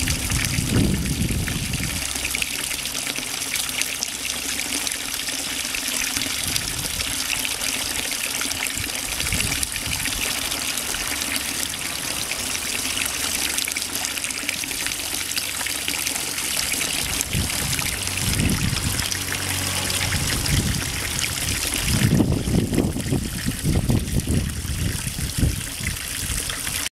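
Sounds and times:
low rumbling: 0.0s - 3.5s, 8.6s - 25.6s
fountain water splashing: 0.0s - 26.9s.

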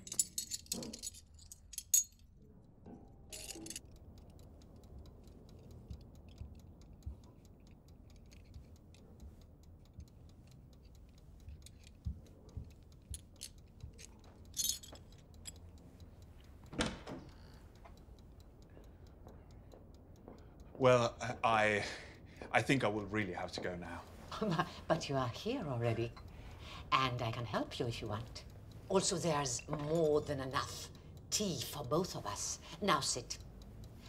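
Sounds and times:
porcelain shards clinking: 0.0s - 3.9s, 13.1s - 15.6s
clock ticking: 0.0s - 34.0s.

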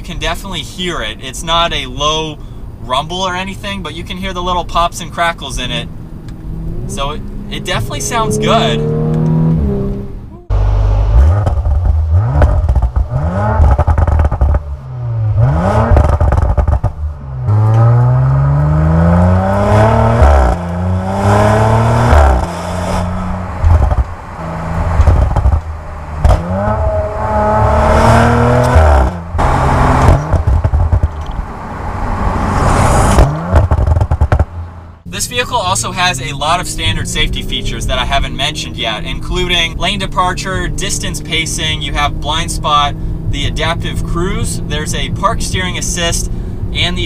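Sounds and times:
car exhaust accelerating: 4.4s - 47.0s
exhaust pops and crackles: 10.5s - 31.5s, 33.1s - 47.0s.

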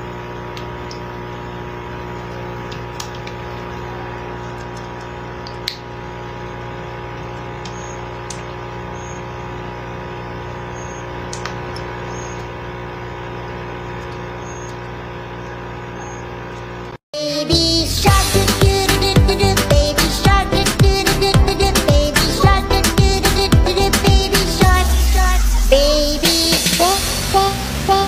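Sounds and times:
aquarium pump humming: 0.0s - 17.0s.

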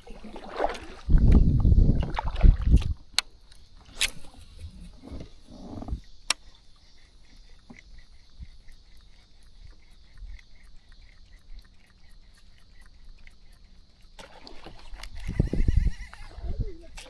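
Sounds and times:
insects chirping: 0.0s - 17.0s
low bumping and rumbling: 4.6s - 6.1s.

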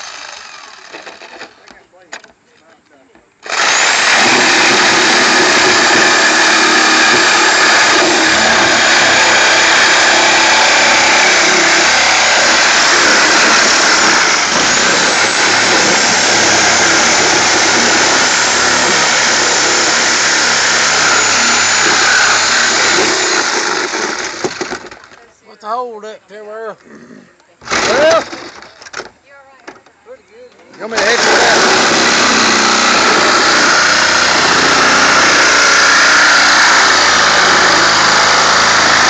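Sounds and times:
reciprocating saw cutting sheet metal: 3.4s - 24.9s, 30.9s - 39.0s.

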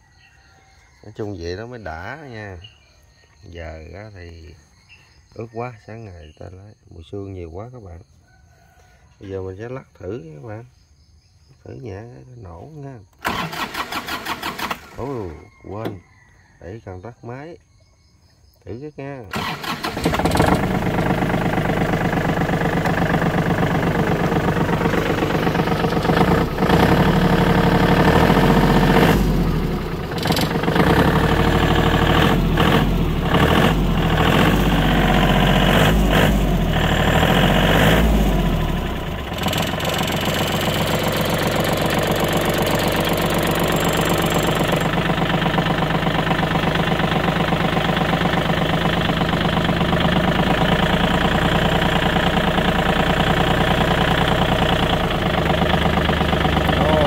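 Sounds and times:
tractor diesel engine idling: 13.1s - 16.0s, 19.2s - 57.0s.

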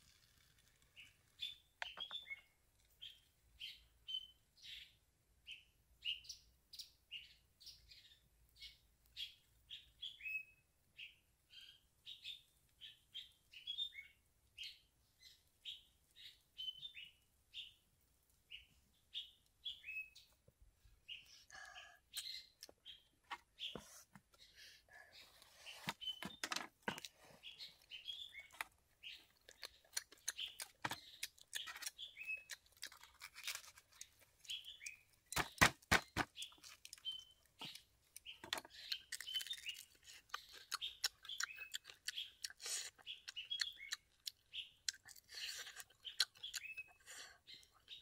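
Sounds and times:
small birds chirping: 0.0s - 48.0s
chewing: 28.5s - 34.6s, 36.4s - 47.2s.

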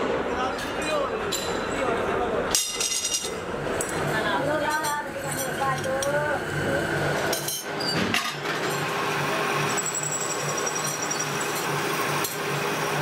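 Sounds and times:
metal lathe running: 2.9s - 13.0s.

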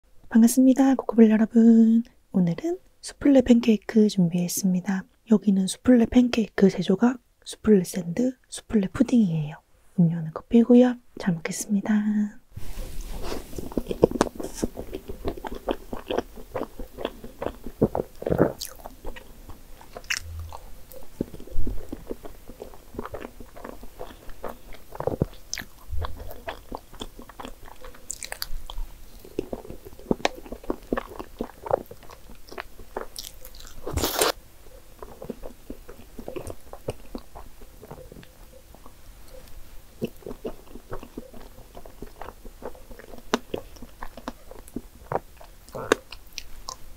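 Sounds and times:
wet smacking and chewing: 13.1s - 46.9s.

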